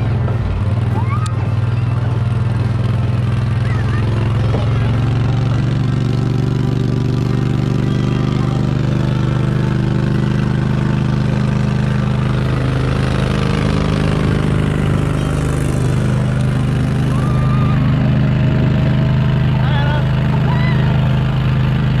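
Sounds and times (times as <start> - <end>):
vehicle engine running steadily: 0.0 - 22.0.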